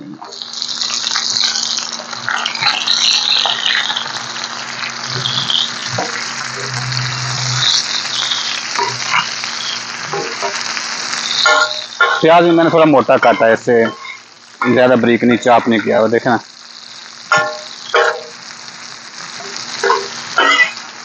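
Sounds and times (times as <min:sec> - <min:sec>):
onion sizzling in ghee: 0:00.0 - 0:21.0
steel spatula scraping: 0:11.4 - 0:14.3, 0:19.8 - 0:20.8.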